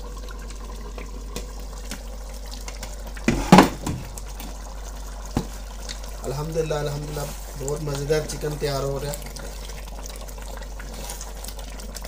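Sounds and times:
curry bubbling in pot: 0.0s - 12.0s.

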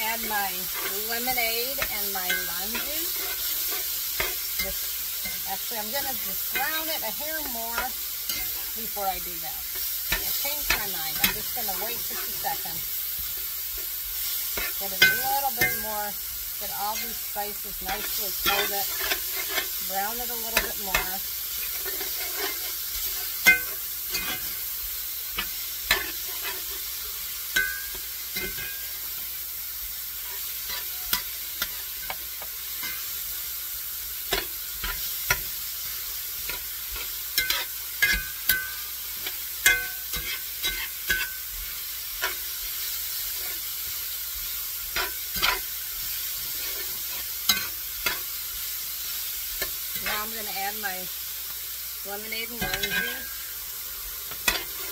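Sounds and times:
utensil scraping a pan: 0.0s - 16.0s, 16.6s - 29.2s, 34.3s - 42.5s, 43.1s - 44.0s, 44.9s - 48.3s, 54.2s - 54.9s
beef sizzling in a frying pan: 0.0s - 54.9s.

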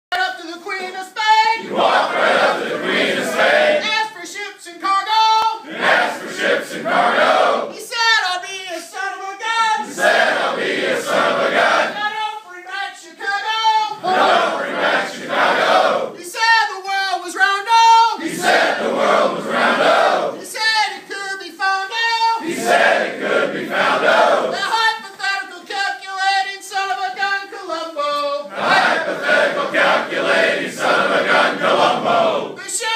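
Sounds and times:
man singing alone: 12.0s - 14.0s, 20.4s - 22.4s, 24.6s - 28.5s.

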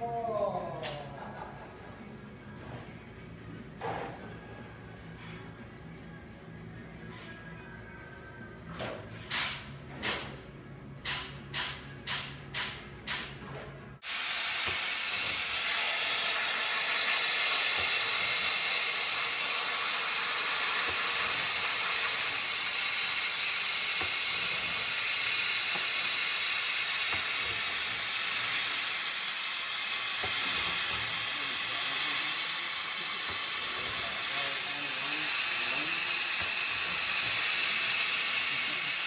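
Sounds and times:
compressed air hissing: 14.0s - 39.0s
thin high whine: 14.0s - 39.0s.

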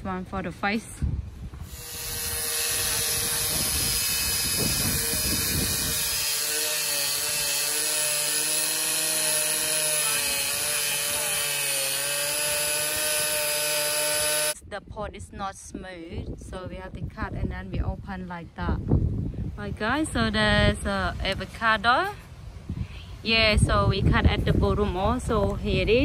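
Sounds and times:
angle grinder cutting plastic: 1.6s - 14.6s.

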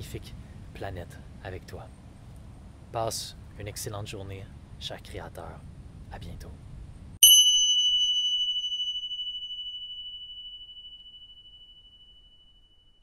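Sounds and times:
high bell-like chime: 7.2s - 13.0s.

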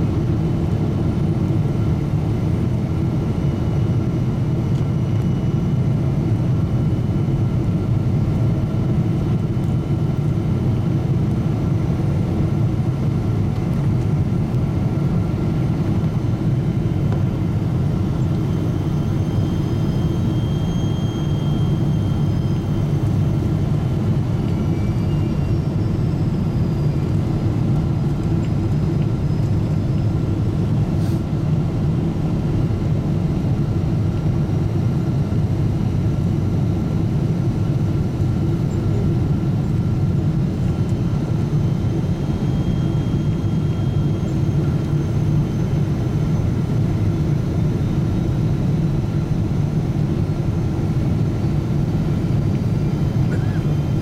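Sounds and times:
airplane engine and airflow rumble: 0.0s - 54.0s
faint thin whistling tones: 18.4s - 23.4s, 24.5s - 27.0s.

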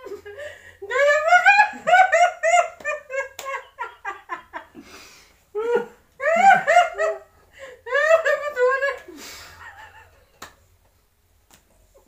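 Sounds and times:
woman laughing: 0.0s - 4.8s, 5.6s - 10.4s.

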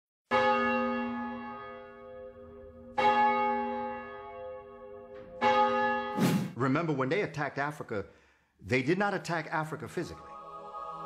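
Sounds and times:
church bell tolling: 0.3s - 6.2s.

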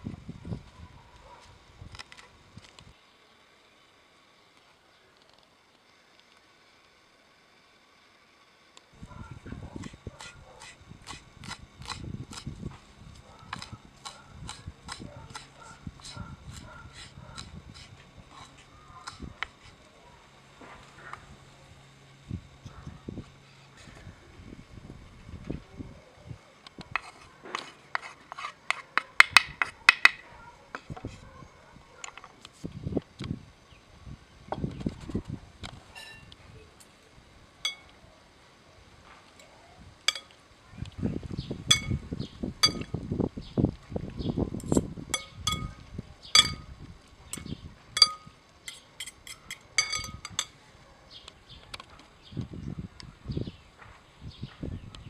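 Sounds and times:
taps and scrapes on cutting board: 26.9s - 30.2s
cutlery clinking on glass: 45.2s - 45.8s, 48.0s - 50.5s.

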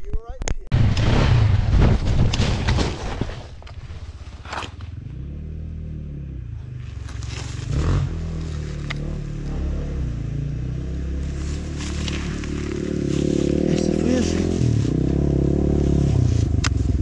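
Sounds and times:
gear scraping on gravel: 1.0s - 5.2s, 6.7s - 9.7s, 11.1s - 16.6s.

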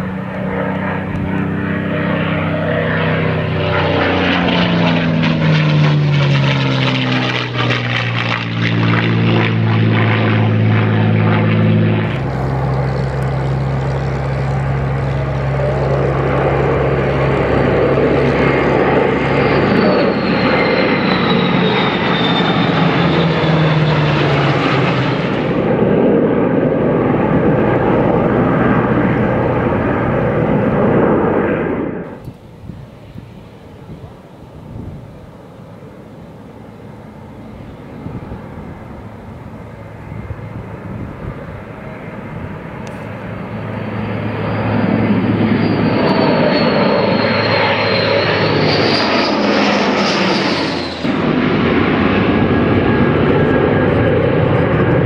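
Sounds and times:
aircraft formation drone: 0.0s - 55.0s
propeller plane flying past: 0.0s - 55.0s
faint high whine: 28.8s - 51.3s.

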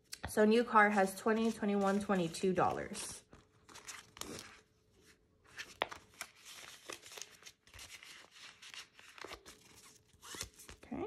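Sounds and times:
plastic pouch and paper crinkling: 1.3s - 11.0s.

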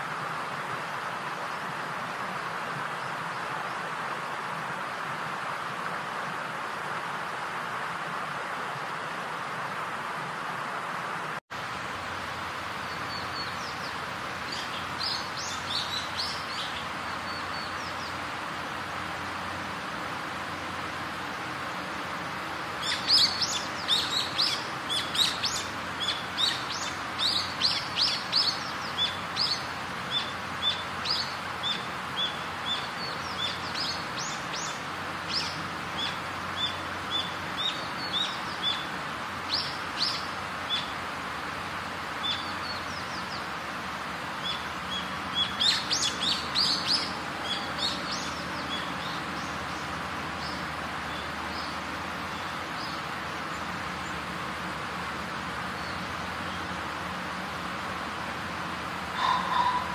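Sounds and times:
background hiss: 0.0s - 59.9s
birds chirping: 12.6s - 55.0s, 59.0s - 59.9s.

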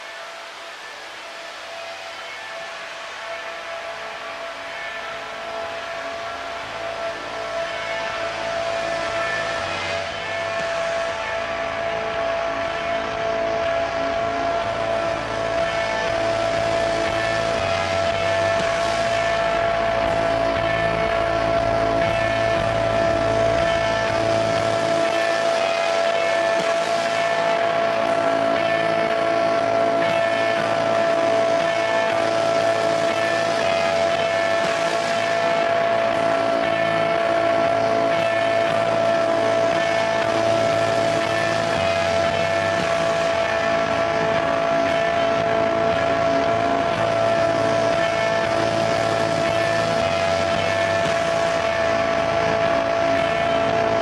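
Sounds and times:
electronic drone: 0.0s - 54.0s.

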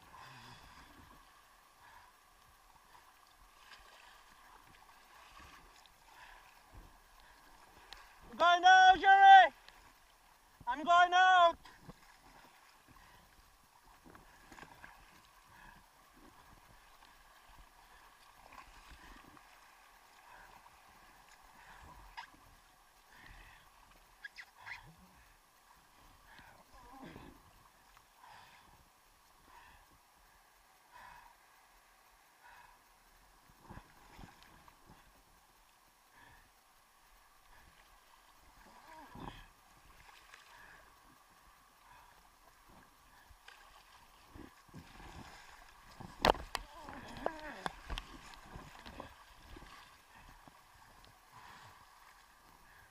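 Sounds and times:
muffled water sloshing: 0.0s - 10.8s, 11.4s - 52.9s
paddle strokes: 0.0s - 30.0s, 32.2s - 52.9s.

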